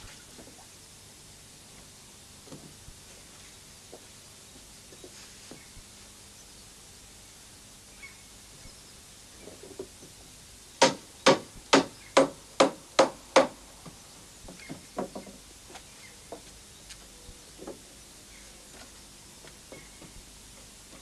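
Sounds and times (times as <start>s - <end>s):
hammer striking wooden planks: 10.8s - 13.6s.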